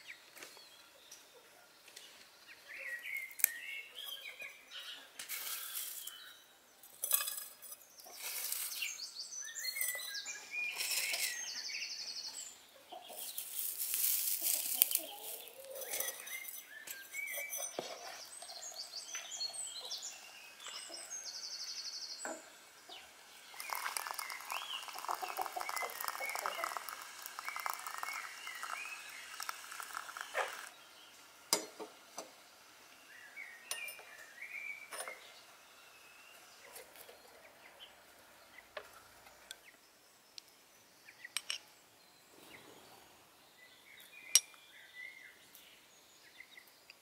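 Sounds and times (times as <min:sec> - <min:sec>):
birds chirping: 0:00.0 - 0:47.0
dried herbs crackling and rustling: 0:13.1 - 0:16.6, 0:23.5 - 0:30.7
water running into a kettle: 0:23.3 - 0:30.8.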